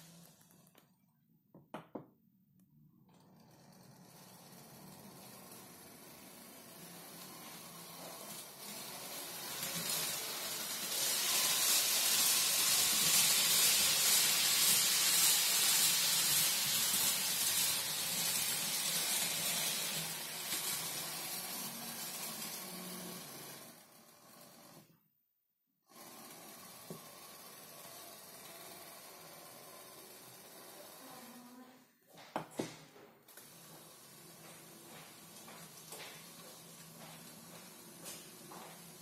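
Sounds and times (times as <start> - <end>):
model train rushing hiss: 5.2 - 24.8.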